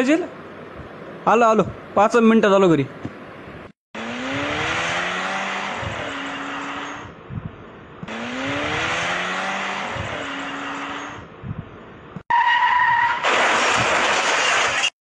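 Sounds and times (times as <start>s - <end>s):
cartoon engine revving: 4.0s - 7.0s, 8.1s - 10.5s
tyres skidding: 4.0s - 7.3s, 8.0s - 14.9s.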